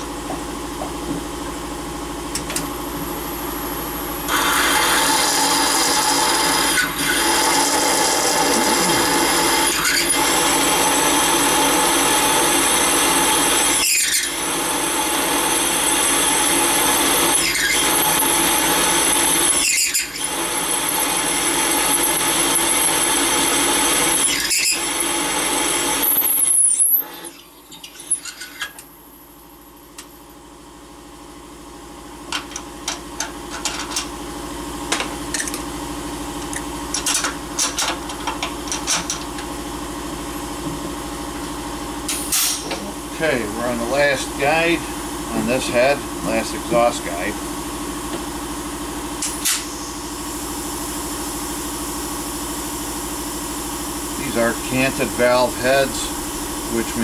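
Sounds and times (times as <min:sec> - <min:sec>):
high-pitched drill spindle whine: 0:04.2 - 0:28.9, 0:48.8 - 0:57.0.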